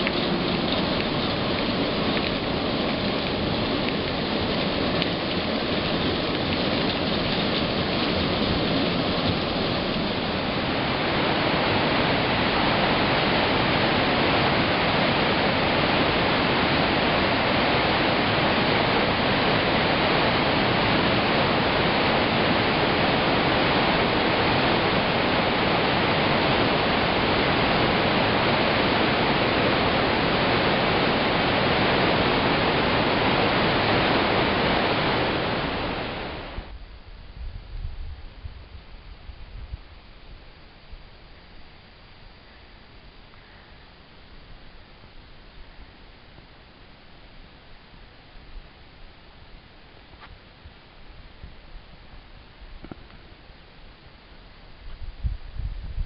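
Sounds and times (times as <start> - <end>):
mountain torrent rushing: 0.0 - 36.8
steady rain: 0.0 - 56.0.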